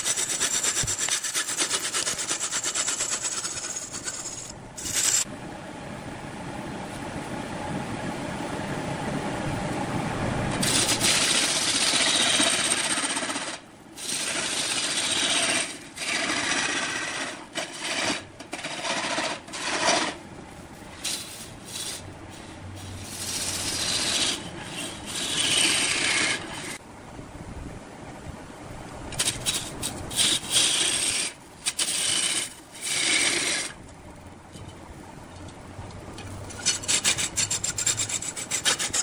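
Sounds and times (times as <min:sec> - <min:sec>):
turning tool scraping wood: 0:00.0 - 0:05.3, 0:10.6 - 0:20.2, 0:23.0 - 0:26.8, 0:29.2 - 0:33.8, 0:36.5 - 0:39.0
wood lathe turning: 0:00.0 - 0:05.3, 0:10.6 - 0:20.2, 0:23.1 - 0:26.8, 0:29.2 - 0:33.8.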